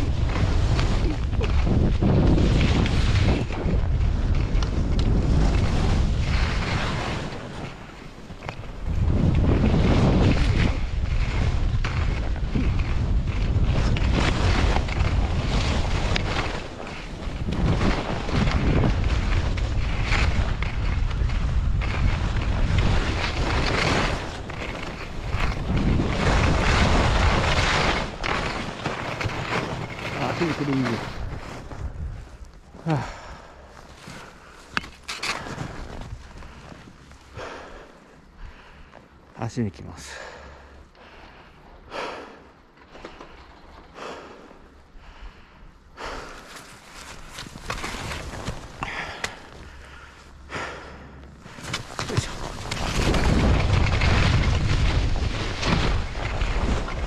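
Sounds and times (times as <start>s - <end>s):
wind rushing over microphone: 0.0s - 38.8s, 46.0s - 57.0s
skis scraping over snow: 0.0s - 40.6s, 46.0s - 57.0s.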